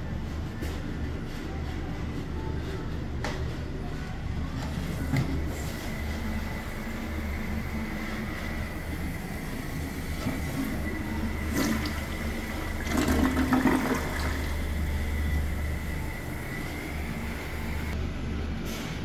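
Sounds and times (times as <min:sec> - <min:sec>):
toilet flushing: 0:05.0 - 0:18.0.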